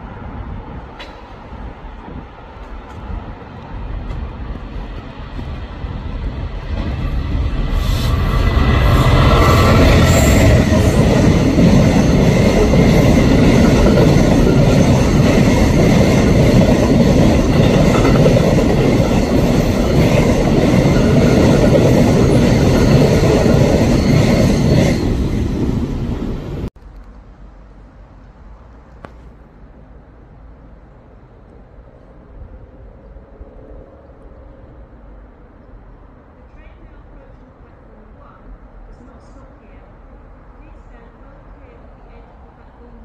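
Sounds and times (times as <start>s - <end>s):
train wagons rolling on rails: 0.0s - 27.2s
diesel locomotive passing: 0.0s - 43.0s.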